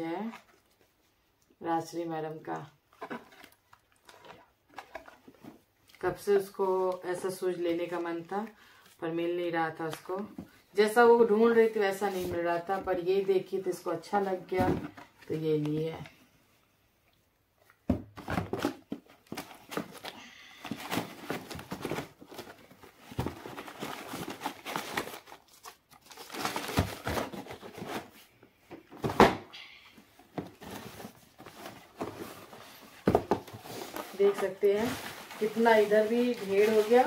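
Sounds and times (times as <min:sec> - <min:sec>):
tissue paper and bags crinkling: 0:19.3 - 0:28.1, 0:30.6 - 0:37.0.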